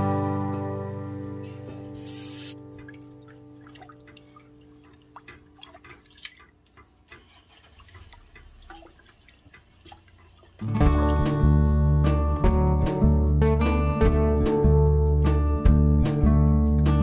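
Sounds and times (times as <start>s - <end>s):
sloshing and dripping: 2.5s - 11.2s.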